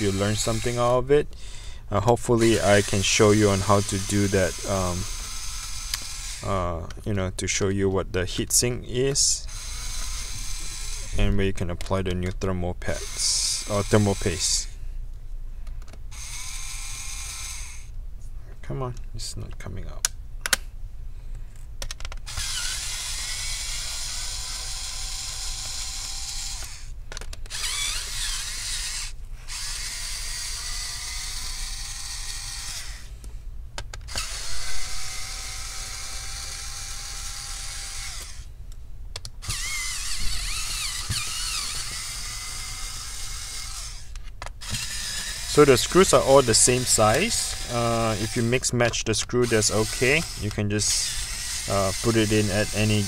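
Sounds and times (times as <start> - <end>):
electric screwdriver running: 0.0 - 0.8, 2.4 - 6.5, 9.5 - 11.1, 16.1 - 17.9, 22.3 - 26.9, 27.5 - 33.1, 34.1 - 38.5, 39.4 - 48.6, 49.4 - 53.0.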